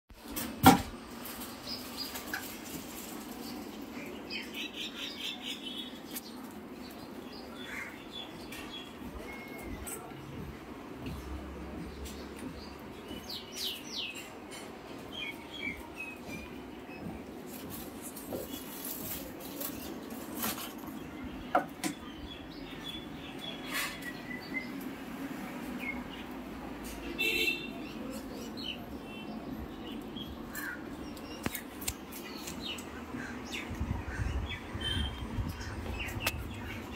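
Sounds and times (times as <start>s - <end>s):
footsteps on stone tiles: 15.0s - 21.1s.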